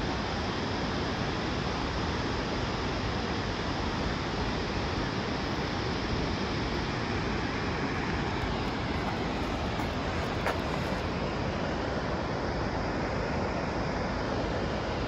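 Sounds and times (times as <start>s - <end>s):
waterfall roaring: 7.6s - 11.3s.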